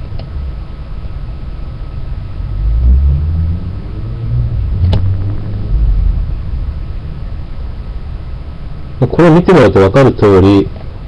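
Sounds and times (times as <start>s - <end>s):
low rumbling noise: 0.0s - 11.0s
sharp click: 4.8s - 5.1s.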